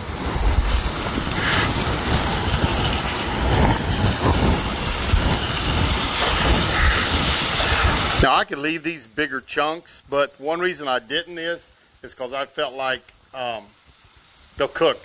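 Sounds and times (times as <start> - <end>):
wind rumble on microphone: 0.0 - 8.3
meat sizzling in hot oil: 0.0 - 15.0.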